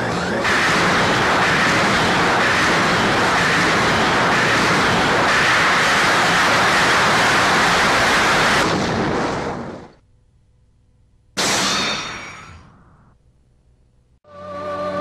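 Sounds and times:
rushing roar of a blast: 0:00.3 - 0:08.7.

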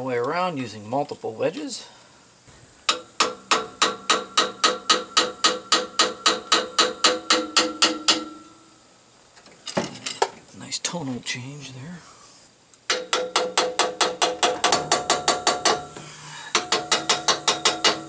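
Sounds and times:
hammer tapping metal ringing: 0:02.9 - 0:08.6, 0:16.6 - 0:18.0.

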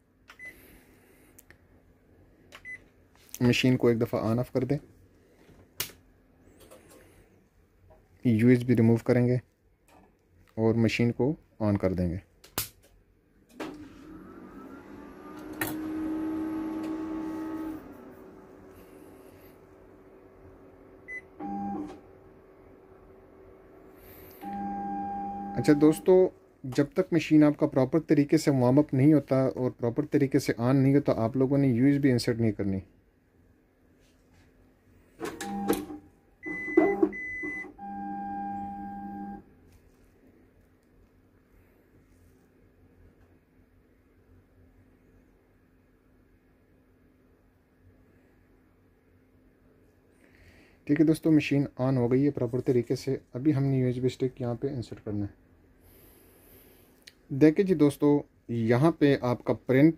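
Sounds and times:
copier machine hum: 0:13.5 - 0:26.4, 0:35.2 - 0:39.4
copier mechanical clunks: 0:35.2 - 0:37.7.

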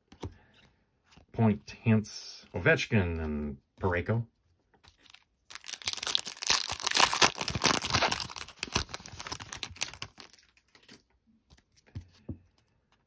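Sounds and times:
foil wrapper crinkling: 0:05.0 - 0:10.9.

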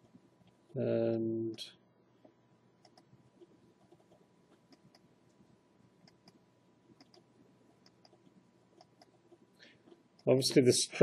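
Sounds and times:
computer mouse clicks: 0:02.2 - 0:03.1, 0:03.8 - 0:05.1, 0:06.0 - 0:06.4, 0:07.0 - 0:10.3.

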